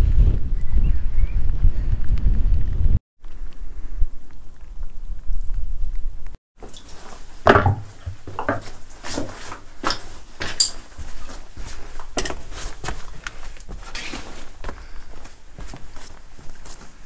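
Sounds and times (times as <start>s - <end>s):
footsteps on loose slate: 6.6s - 17.0s.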